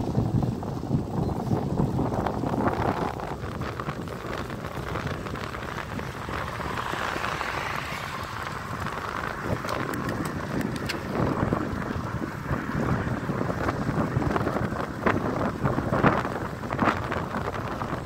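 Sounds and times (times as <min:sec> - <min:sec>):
bicycle tyres on road: 0:00.0 - 0:18.0
wind rushing over microphone: 0:00.0 - 0:18.0
sharp clicks and rattles: 0:02.1 - 0:12.1.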